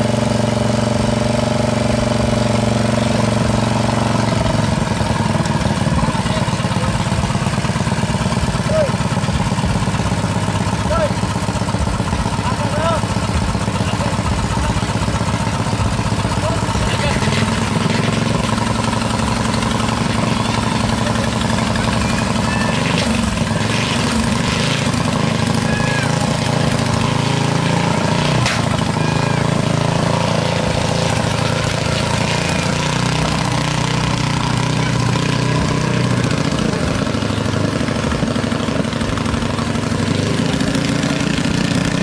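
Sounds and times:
boat engine idling: 0.0s - 42.0s.

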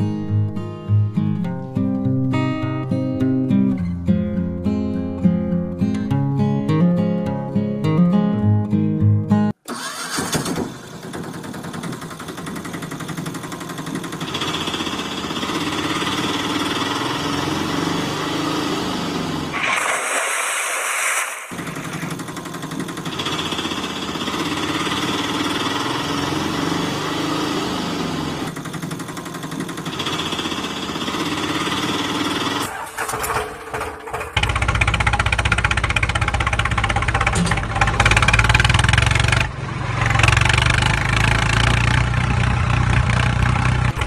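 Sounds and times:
small engine chugging: 9.7s - 17.9s, 21.6s - 27.0s, 28.3s - 39.5s
rushing hiss: 19.5s - 22.2s.

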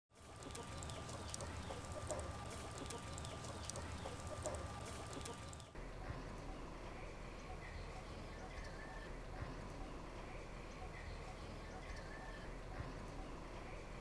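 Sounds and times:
chickens clucking: 0.2s - 5.7s
small birds chirping: 0.2s - 5.8s.

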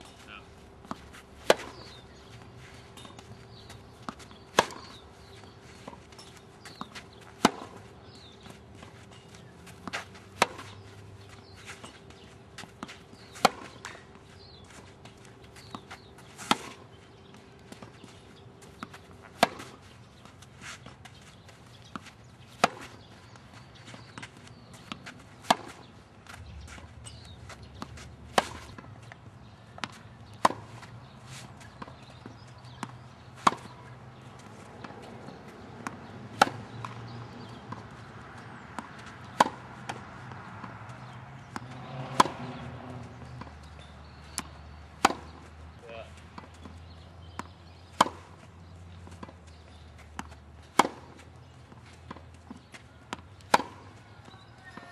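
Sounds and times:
tennis racket hitting ball: 0.8s - 21.1s, 21.9s - 29.2s, 29.8s - 45.6s, 46.4s - 48.4s, 49.0s - 54.8s
ball bouncing on court: 34.8s - 45.4s.

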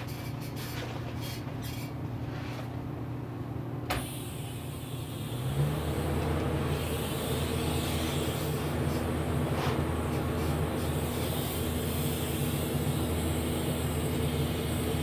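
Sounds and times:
hiss: 3.9s - 15.0s
welding machine humming: 3.9s - 15.0s.

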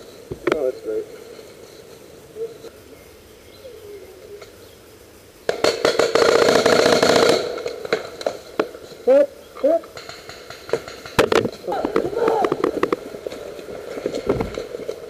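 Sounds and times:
paintball markers firing: 5.5s - 8.8s, 9.9s - 13.0s.

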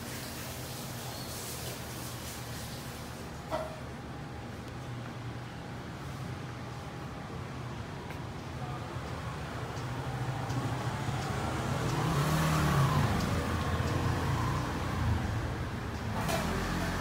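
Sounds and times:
steady background hum: 1.8s - 11.5s
vehicle passing: 9.2s - 17.0s.

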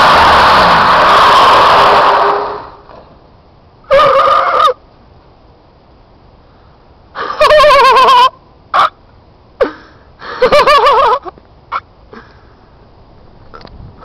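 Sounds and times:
tyres squealing on asphalt: 0.0s - 3.1s, 3.9s - 4.8s
short sharp tyre chirps: 0.0s - 3.2s.

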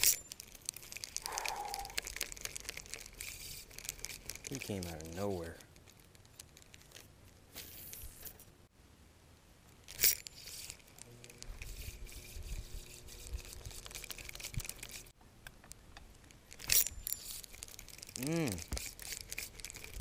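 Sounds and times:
rustling handling noise: 0.0s - 8.6s, 16.0s - 20.0s.

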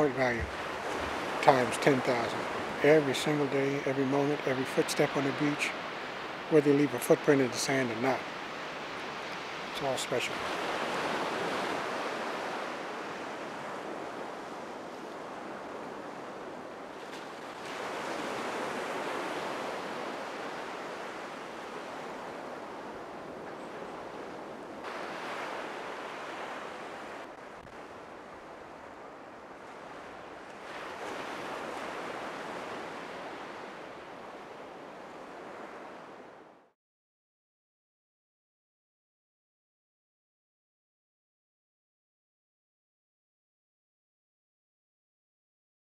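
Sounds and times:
ocean surf on sandy beach: 0.0s - 36.7s.

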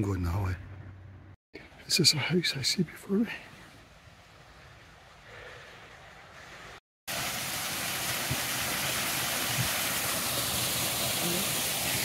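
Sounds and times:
faint outdoor hiss: 0.0s - 12.0s
waterfall rushing: 7.1s - 12.0s.

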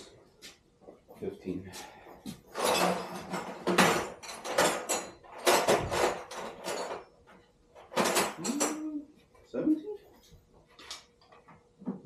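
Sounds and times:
metal tools clattering: 2.2s - 8.8s.

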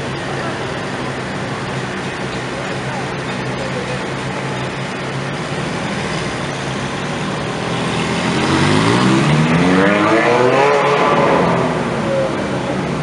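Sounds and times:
car engines idling: 0.0s - 13.0s
car engine revving up: 4.2s - 13.0s.

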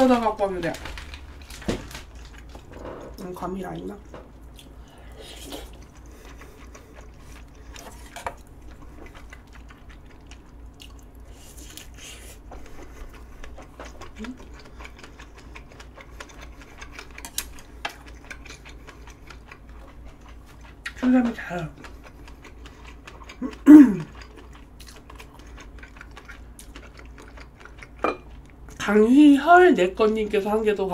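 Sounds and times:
low hum: 0.0s - 24.5s
chewing: 0.1s - 28.8s
person slurping: 5.0s - 8.2s.

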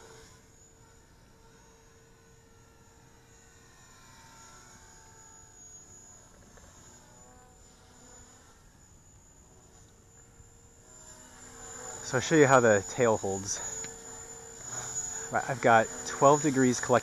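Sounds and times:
distant rc helicopter hum: 0.0s - 17.0s.

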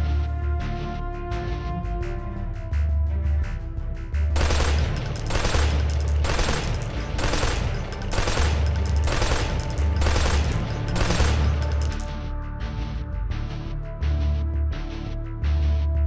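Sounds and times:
music with pulsing bass beat: 0.0s - 16.0s
assault rifle gunfire bursts: 4.4s - 12.1s.

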